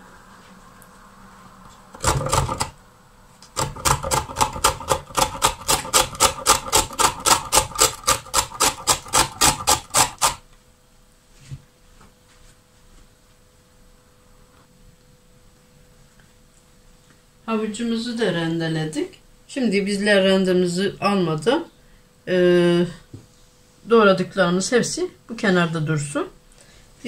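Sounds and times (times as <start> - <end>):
carrot rasping on a grater: 3.6 - 10.4.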